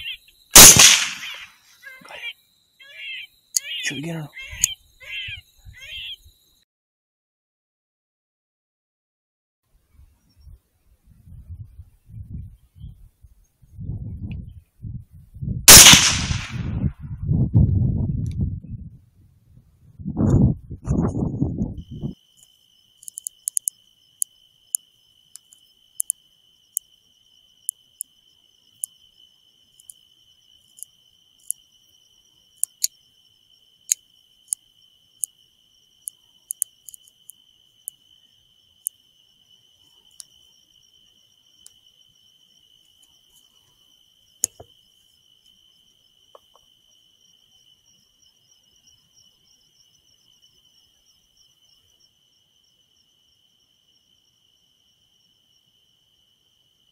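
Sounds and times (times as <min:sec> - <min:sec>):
insect trill: 0:00.0 - 0:06.7, 0:21.2 - 0:56.9.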